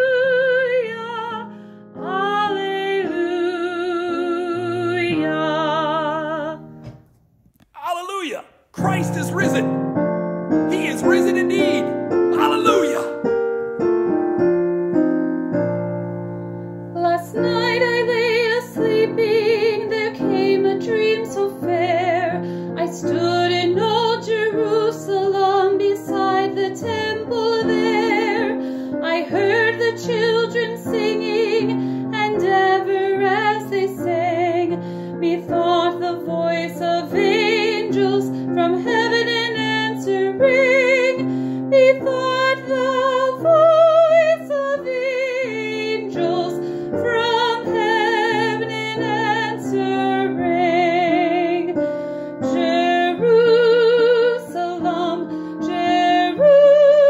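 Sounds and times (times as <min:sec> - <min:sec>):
keyboard chords: 0:07.8 - 0:15.9
person singing with vibrato: 0:12.4 - 0:13.3.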